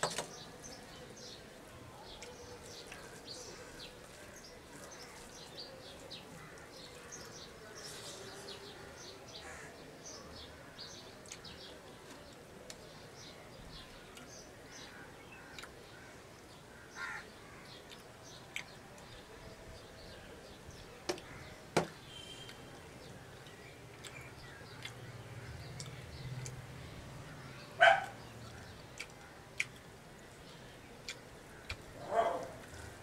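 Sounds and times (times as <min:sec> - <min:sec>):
small birds chirping: 0:00.0 - 0:33.0
crow cawing: 0:16.9 - 0:17.3.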